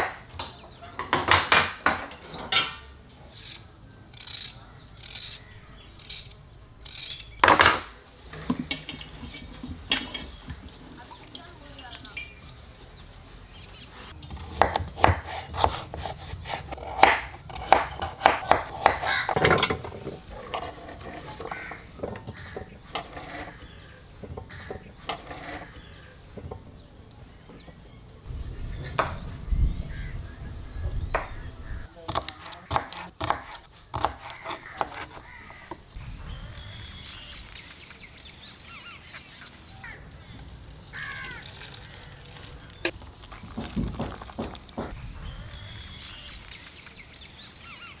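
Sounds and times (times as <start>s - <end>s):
birds chirping: 0.0s - 48.0s
knife chopping carrot on wood: 14.4s - 19.4s, 32.1s - 35.7s.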